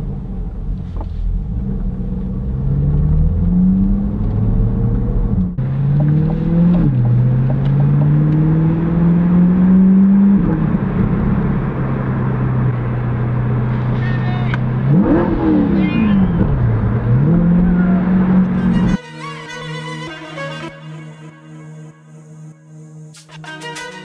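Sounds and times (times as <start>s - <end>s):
car engine accelerating: 0.0s - 19.0s.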